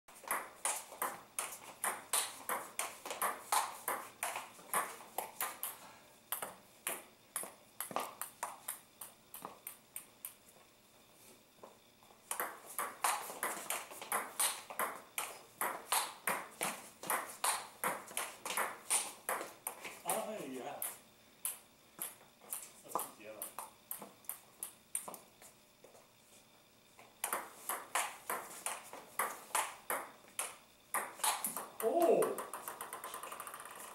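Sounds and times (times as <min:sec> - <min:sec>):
table tennis ball hits: 0:00.2 - 0:10.4, 0:12.3 - 0:20.2, 0:27.2 - 0:33.9.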